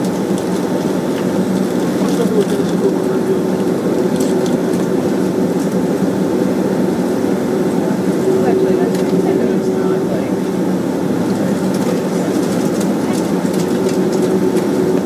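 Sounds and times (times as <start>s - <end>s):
jet engines droning in cabin: 0.0s - 15.0s.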